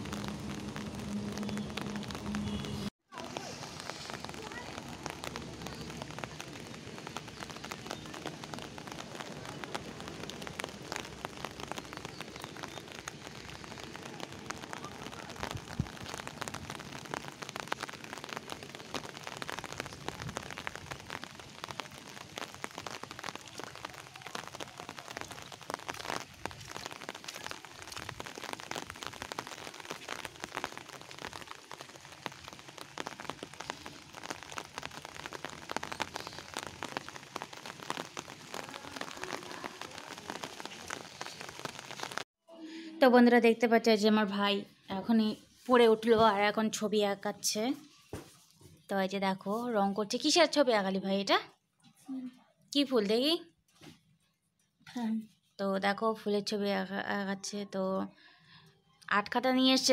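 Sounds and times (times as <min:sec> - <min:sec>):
rain on concrete rooftop: 0:00.0 - 0:42.3, 0:43.2 - 0:57.5, 0:58.1 - 0:59.9
raindrop ticks: 0:00.0 - 0:42.3.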